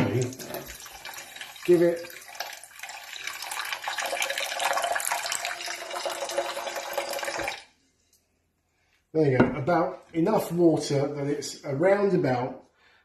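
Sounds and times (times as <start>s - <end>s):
tap water running into saucepan: 0.0s - 7.7s.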